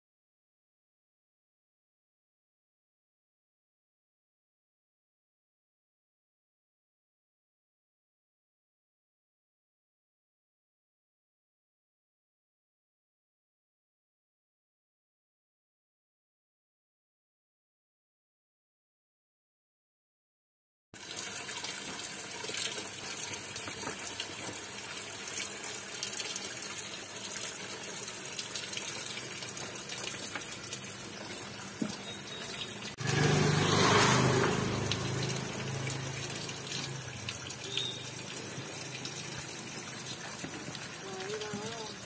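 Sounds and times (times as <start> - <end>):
fountain water splashing: 21.0 - 42.0.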